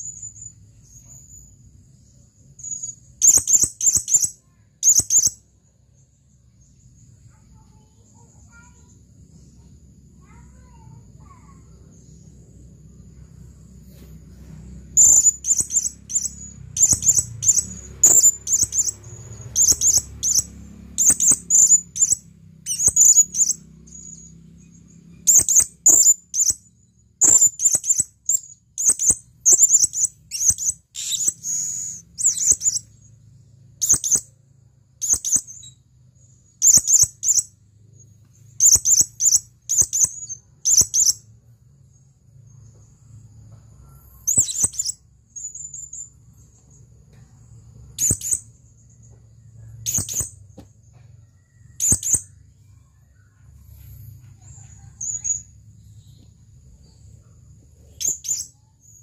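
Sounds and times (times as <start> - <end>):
parrot high sharp calls: 3.2 - 5.4, 15.0 - 24.2, 25.3 - 26.6, 27.2 - 32.8, 36.6 - 37.5.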